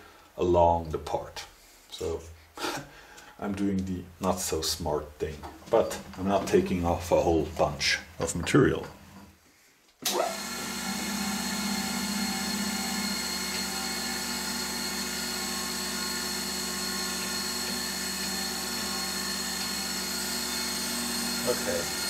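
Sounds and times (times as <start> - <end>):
surface grinder running: 10.3 - 22.0.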